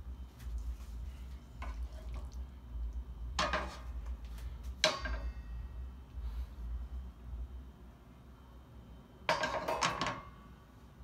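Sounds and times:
low hum: 0.0 - 9.4
cookware knocking and clattering: 4.8 - 5.3, 9.3 - 10.2.

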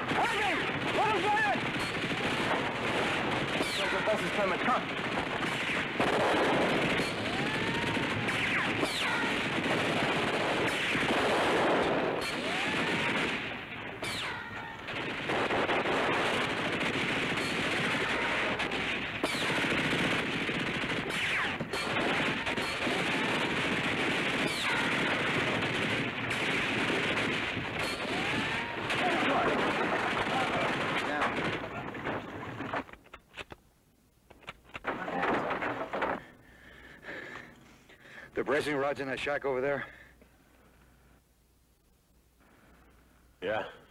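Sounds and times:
machine-gun and rifle fire: 0.0 - 32.6.

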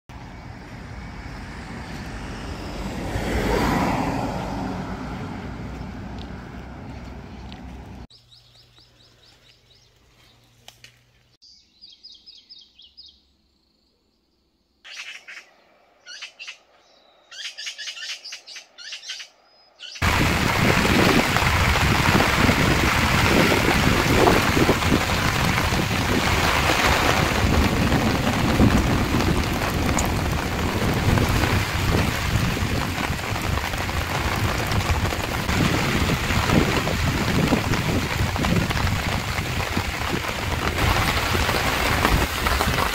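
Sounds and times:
birds chirping: 7.2 - 10.6, 11.4 - 20.0
heavy rain on a tarp: 20.0 - 42.9.

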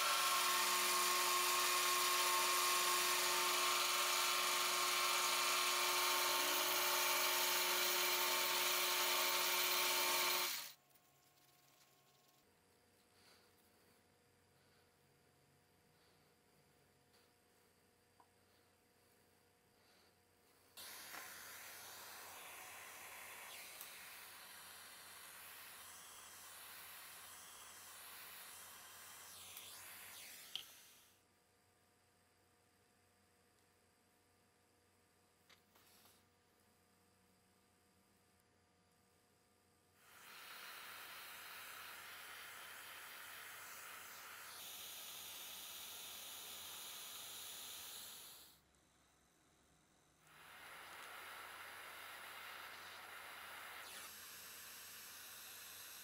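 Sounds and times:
gas torch hissing: 20.8 - 31.1, 40.0 - 48.7, 50.2 - 56.0.

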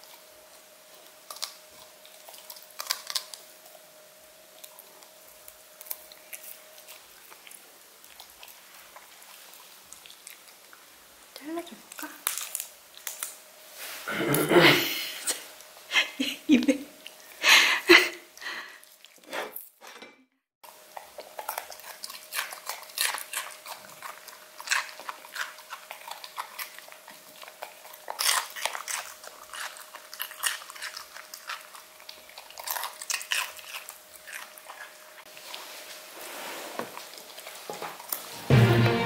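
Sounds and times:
dog crunching celery: 0.0 - 13.4, 20.7 - 36.0, 36.9 - 38.4.

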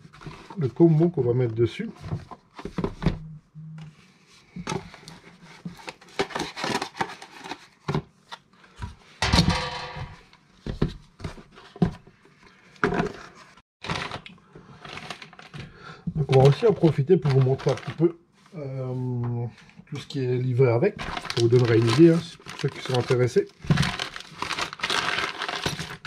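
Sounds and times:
packaging rustling: 5.0 - 7.8, 13.8 - 15.6, 16.2 - 18.1, 21.0 - 26.0.

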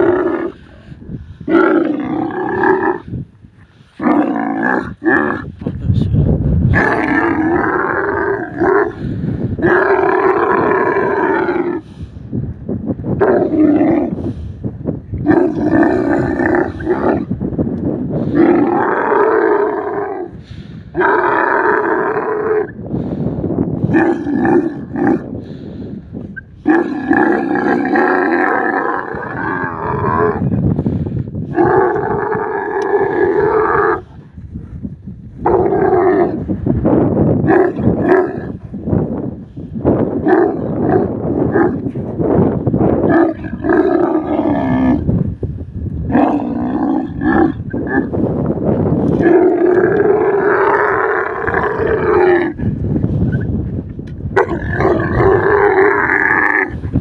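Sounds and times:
camel bellowing: 0.0 - 3.2, 3.8 - 5.6, 6.7 - 12.0, 13.2 - 14.4, 15.2 - 17.4, 18.0 - 22.8, 23.8 - 25.3, 26.3 - 30.6, 31.4 - 34.3, 35.4 - 36.6, 37.4 - 38.8, 40.0 - 45.1, 46.0 - 53.5, 54.3 - 57.0.

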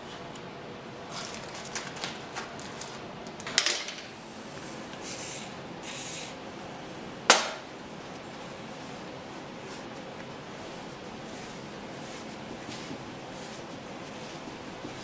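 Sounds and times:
aerosol can spraying: 5.0 - 6.4.

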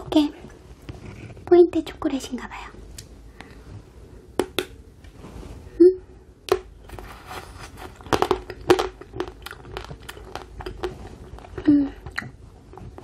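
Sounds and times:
chocolate crunching and snapping: 6.5 - 13.0.

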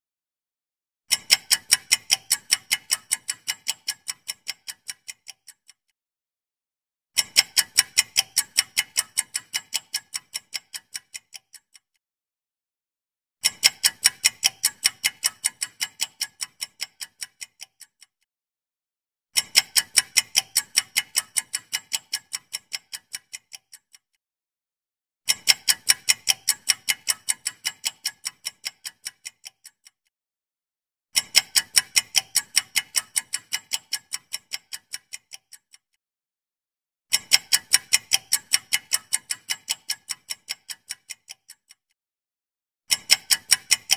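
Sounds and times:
clock-like ticking: 1.1 - 6.0, 7.2 - 12.0, 13.4 - 18.3, 19.4 - 24.2, 25.3 - 30.1, 31.2 - 36.0, 37.1 - 42.0, 42.9 - 43.9.

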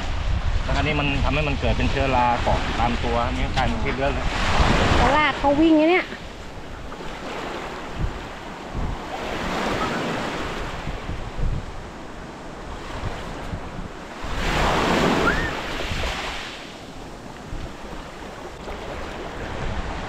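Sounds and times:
waves washing on beach: 0.0 - 20.0
wind buffeting microphone: 0.0 - 20.0.

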